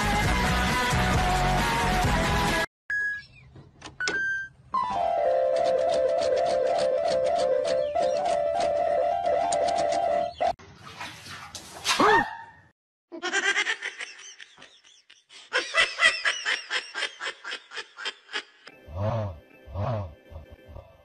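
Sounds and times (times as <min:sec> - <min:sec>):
electronic keyboard chord: 0:04.8 - 0:10.5.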